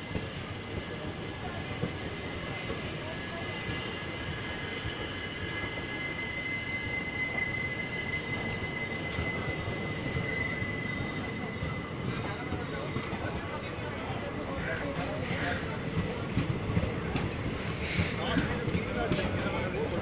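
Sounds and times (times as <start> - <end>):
train wheels rumbling on rail: 0.0 - 20.0
high-pitched wheel squeal: 3.8 - 13.1.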